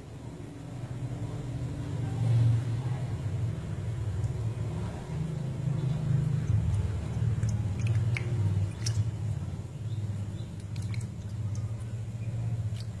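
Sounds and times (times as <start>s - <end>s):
steady low hum: 0.0s - 13.0s
wet squishing and small splashes: 3.9s - 13.0s.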